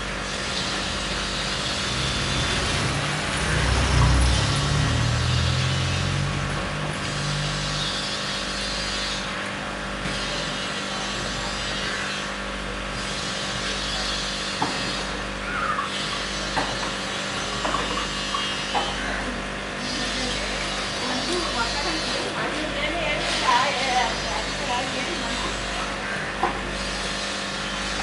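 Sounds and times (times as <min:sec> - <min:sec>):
aquarium equipment humming: 0:00.0 - 0:28.0.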